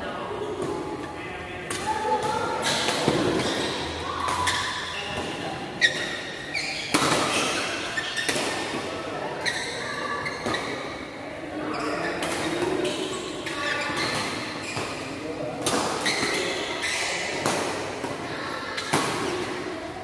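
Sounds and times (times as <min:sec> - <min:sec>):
rackets hitting shuttlecock: 0:01.6 - 0:08.9, 0:12.2 - 0:16.6, 0:17.2 - 0:19.7.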